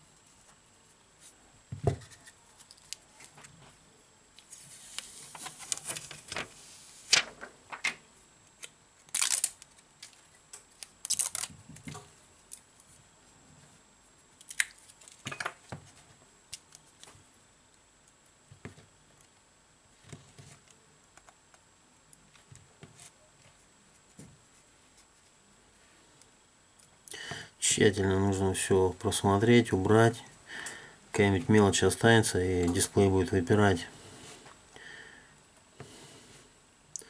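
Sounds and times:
plastic film peeling and crackling: 0:04.5 - 0:07.9, 0:08.6 - 0:12.9, 0:14.3 - 0:15.3.

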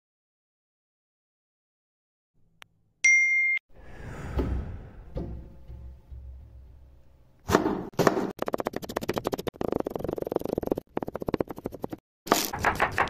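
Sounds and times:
knife chopping on cutting board: 0:07.4 - 0:08.3, 0:12.3 - 0:13.0.

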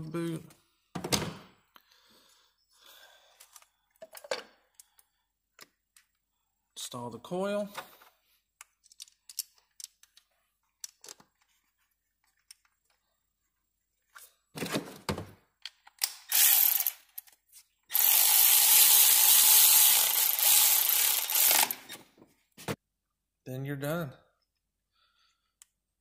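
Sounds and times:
electric ratchet whirring: 0:16.2 - 0:17.2, 0:17.9 - 0:22.0.

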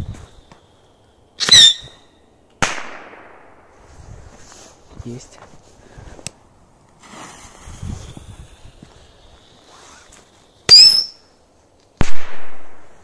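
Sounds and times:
rocket high whistle: 0:01.4 - 0:02.2, 0:09.6 - 0:11.3
lighter and fuse burning: 0:06.2 - 0:12.0.

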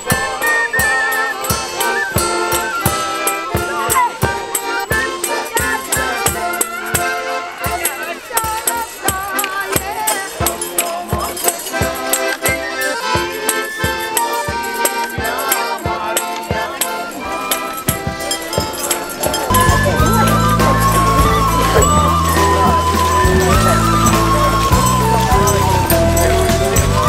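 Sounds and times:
folk band playing: 0:00.0 - 0:27.0
tambourines shaking: 0:00.0 - 0:27.0
steady drumbeat: 0:16.0 - 0:27.0.

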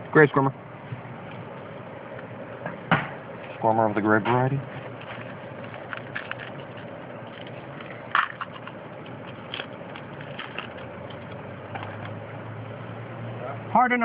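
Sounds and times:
trading cards clicking and rustling: 0:04.3 - 0:12.2.

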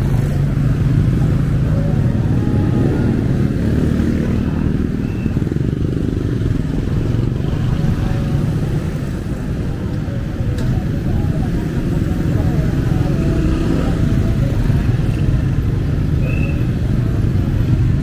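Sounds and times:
street traffic engine rumble: 0:00.0 - 0:18.0.

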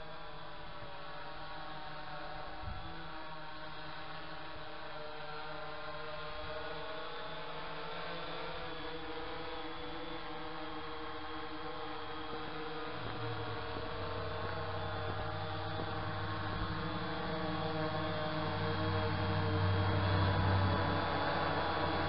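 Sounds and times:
drone propellers buzzing: 0:03.7 - 0:22.0.

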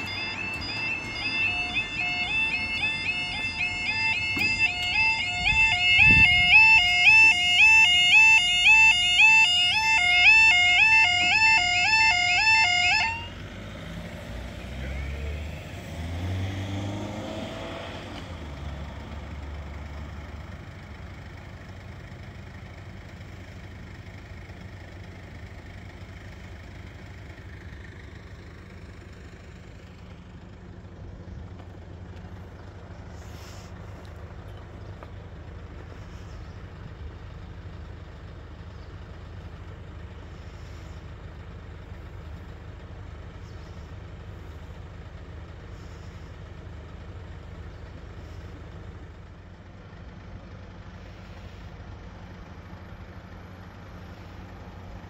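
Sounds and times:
vehicle passing: 0:00.0 - 0:20.6
vehicles idling: 0:00.0 - 0:55.0.

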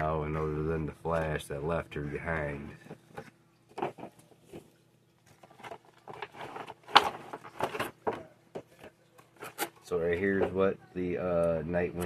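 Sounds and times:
plastic crinkling: 0:02.7 - 0:09.9.

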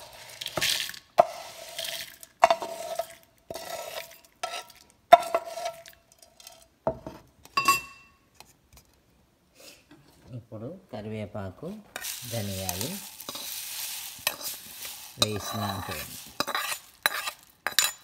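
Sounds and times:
spatula scraping frying pan: 0:00.0 - 0:07.2, 0:11.9 - 0:18.0
metal spatula clanking on pan: 0:15.2 - 0:18.0.

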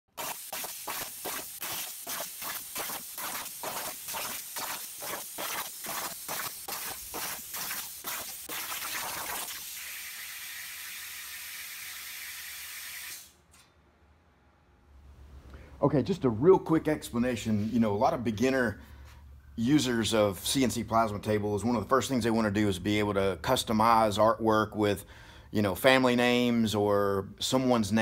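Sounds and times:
plasma torch cutting steel: 0:00.1 - 0:13.4.

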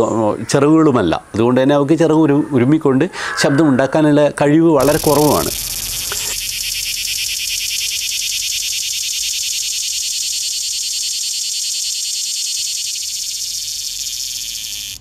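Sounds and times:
cicada buzzing: 0:04.8 - 0:15.0.

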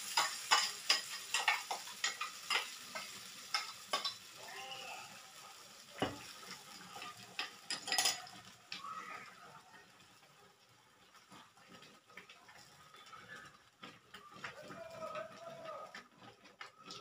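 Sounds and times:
paste sizzling in hot oil: 0:00.0 - 0:13.3
spoon clinking against metal: 0:07.0 - 0:08.3.

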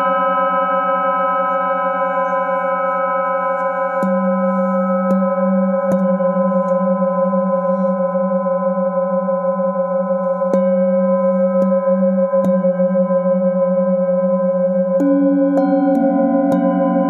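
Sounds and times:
metal singing bowl ringing: 0:00.0 - 0:17.0.

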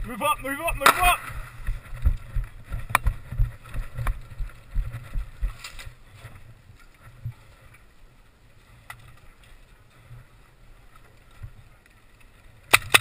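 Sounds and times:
footsteps: 0:00.0 - 0:07.7
low thuds: 0:00.7 - 0:05.8.

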